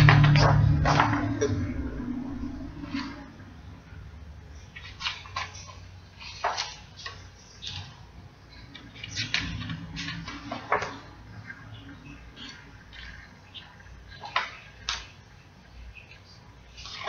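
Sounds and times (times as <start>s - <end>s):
low steady hum: 0.0s - 17.0s
book pages rustling: 4.6s - 17.0s.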